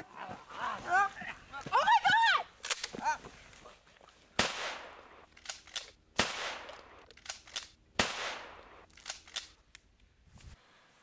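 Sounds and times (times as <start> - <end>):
gunshots with long echo: 4.4 - 5.3, 6.2 - 7.0, 8.0 - 8.9.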